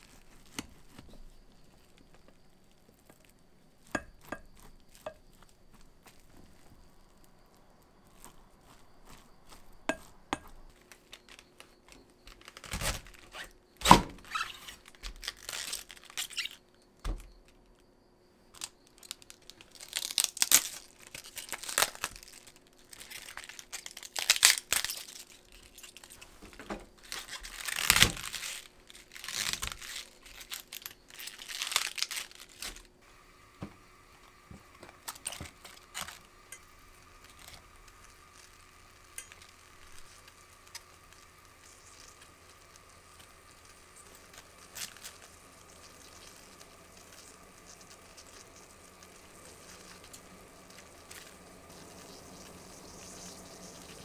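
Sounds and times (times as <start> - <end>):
cabbage leaves tearing: 12.3 - 16.6, 18.6 - 26.2, 27.0 - 33.0, 34.9 - 54.0.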